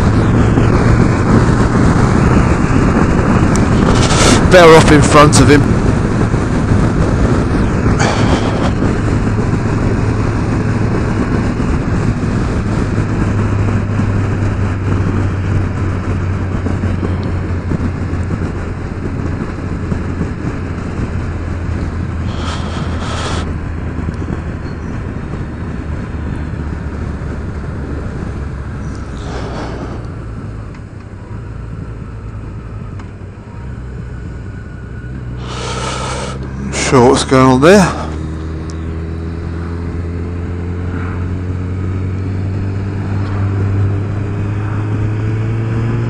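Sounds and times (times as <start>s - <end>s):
motorcycle engine running: 0.0s - 46.0s
wind and road noise: 0.0s - 46.0s
brief rushes of noise: 29.1s - 30.3s.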